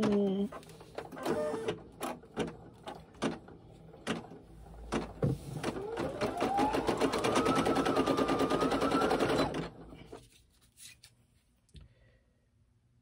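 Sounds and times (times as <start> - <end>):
embroidery machine stitching: 0.0 - 10.0.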